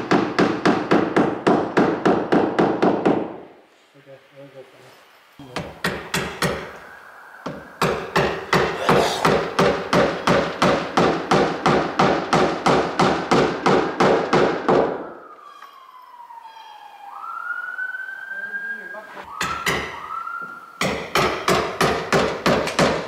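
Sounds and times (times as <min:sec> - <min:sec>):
distant siren: 0:06.3 - 0:09.9, 0:12.8 - 0:21.2.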